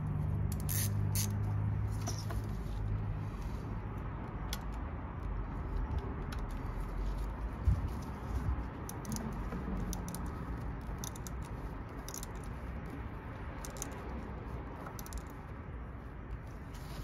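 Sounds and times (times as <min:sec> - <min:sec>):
hand tool clicks and rattles: 0:00.3 - 0:02.4, 0:07.9 - 0:15.6.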